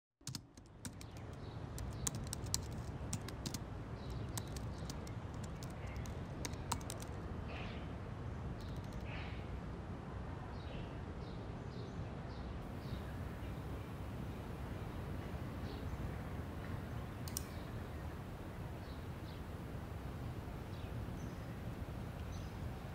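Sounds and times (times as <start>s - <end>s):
keyboard key clicks: 0.2s - 7.2s, 8.6s - 9.0s
birds chirping: 0.6s - 7.9s, 12.6s - 22.9s.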